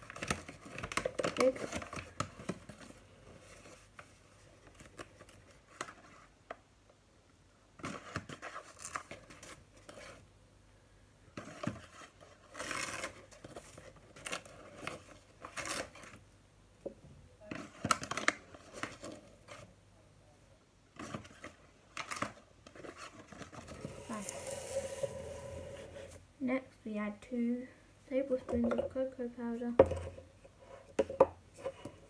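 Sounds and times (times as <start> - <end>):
spoon scraping sugar: 23.8 - 26.2.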